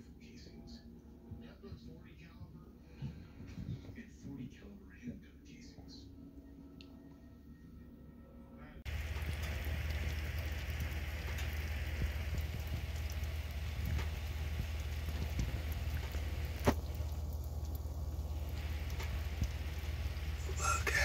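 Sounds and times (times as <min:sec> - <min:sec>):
oven hum: 0:08.9 - 0:21.0
squash sizzling: 0:08.9 - 0:21.0.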